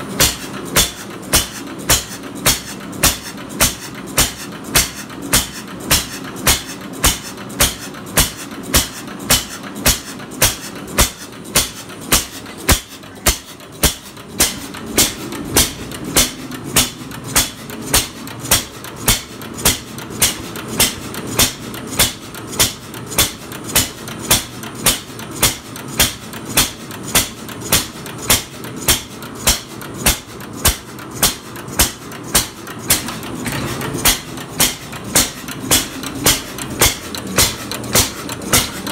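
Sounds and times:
engine parts clattering: 27.4 - 38.9.

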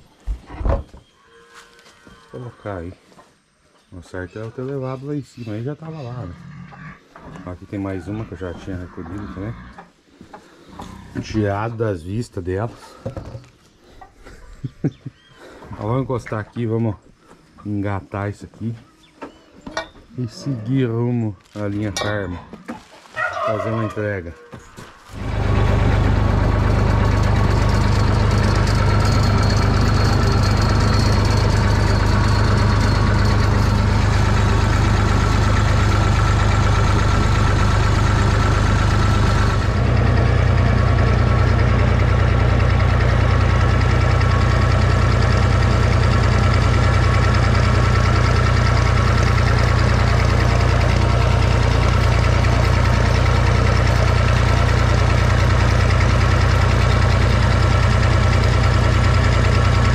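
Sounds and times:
tractor diesel engine running: 25.0 - 59.9.

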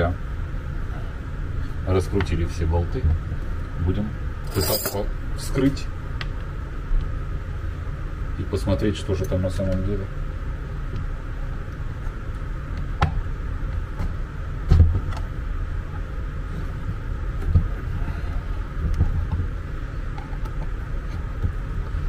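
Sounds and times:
steady low rumble: 0.0 - 22.0.

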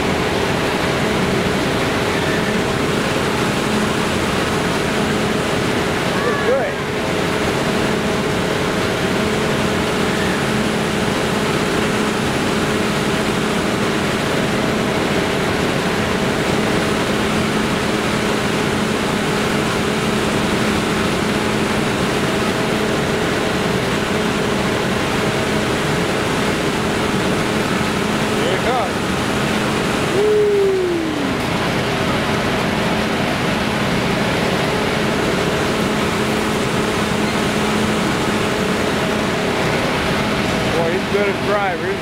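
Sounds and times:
ride machinery humming: 0.0 - 42.0.

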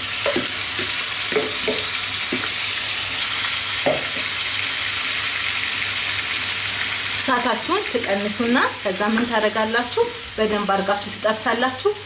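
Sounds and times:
chicken sizzling in hot oil: 0.0 - 12.0
spatula scraping and knocking pan: 0.2 - 2.5.

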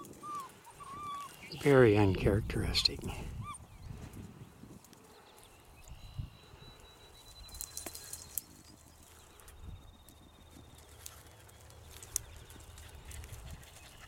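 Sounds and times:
rustling in dry grass: 3.9 - 14.0.

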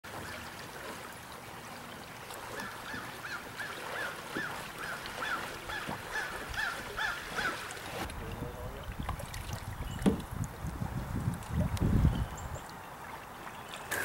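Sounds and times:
flowing stream: 0.0 - 14.0
bird calling: 2.4 - 7.7.

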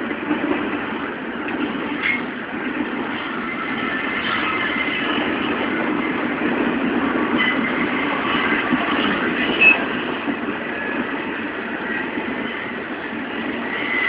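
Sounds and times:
train wheels rumbling on rail: 0.0 - 14.0
wheel squeals: 7.3 - 10.0.

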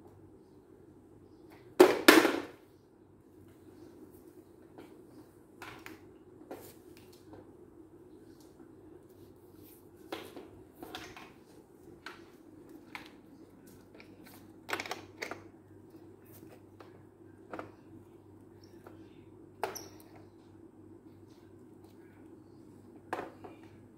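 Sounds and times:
steady low hum: 15.4 - 23.9.

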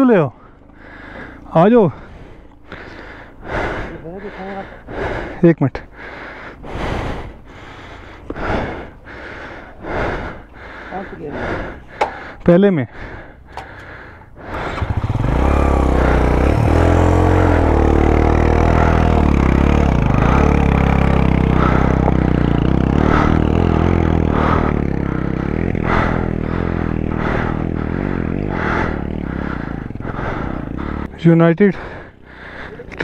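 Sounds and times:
motorcycle engine working hard: 10.9 - 12.4, 13.0 - 33.0.

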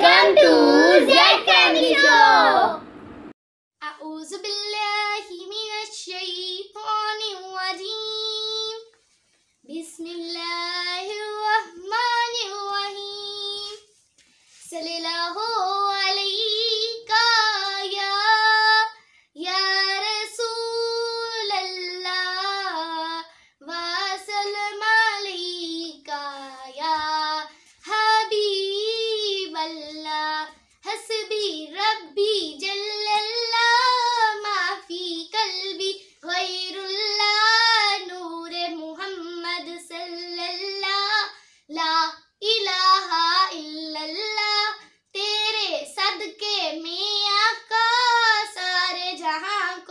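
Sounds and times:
girl singing unaccompanied: 0.0 - 2.8, 3.8 - 9.0, 9.6 - 49.9
singer breathing: 19.0 - 19.4, 23.3 - 23.6, 41.3 - 41.7.

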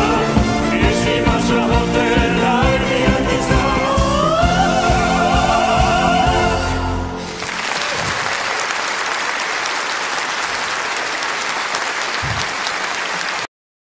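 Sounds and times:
audience applause: 7.2 - 13.5.

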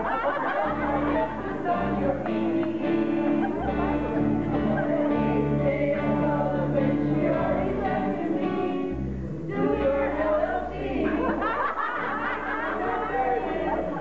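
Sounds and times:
group of voices singing: 0.0 - 14.0
electric bass guitar notes: 0.7 - 11.3.

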